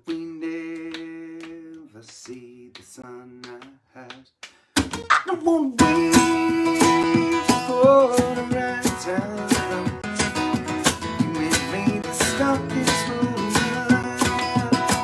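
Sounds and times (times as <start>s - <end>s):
man singing: 0.0s - 4.4s, 5.1s - 15.0s
hand percussion beat: 0.0s - 15.0s
acoustic guitar strumming: 5.0s - 15.0s.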